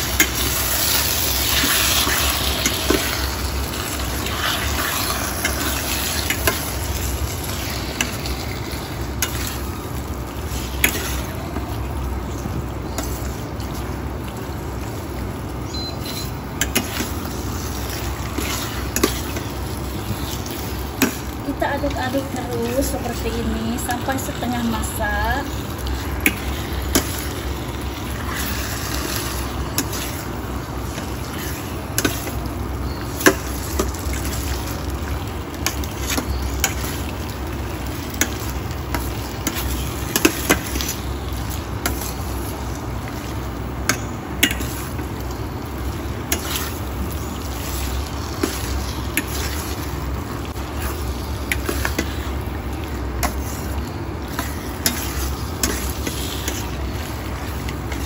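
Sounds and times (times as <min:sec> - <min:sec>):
chicken sizzling in a wok: 0:00.0 - 0:58.0.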